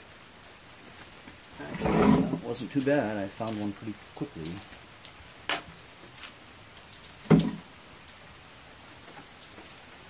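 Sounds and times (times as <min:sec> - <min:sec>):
dull thump: 0:07.2 - 0:07.6.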